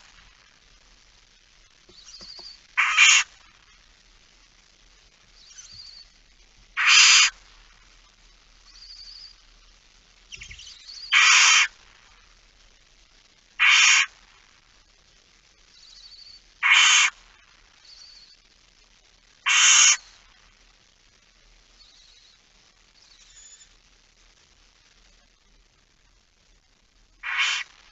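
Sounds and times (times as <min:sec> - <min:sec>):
faint high chirps: 0:01.9 - 0:03.2, 0:05.3 - 0:06.2, 0:08.6 - 0:09.5, 0:10.3 - 0:11.2, 0:15.6 - 0:16.5, 0:17.8 - 0:18.5, 0:21.8 - 0:23.8
owl hissing screeches: 0:01.9 - 0:03.4, 0:06.8 - 0:07.4, 0:10.3 - 0:11.8, 0:13.6 - 0:14.1, 0:15.9 - 0:17.2, 0:19.4 - 0:20.0, 0:27.2 - 0:27.8.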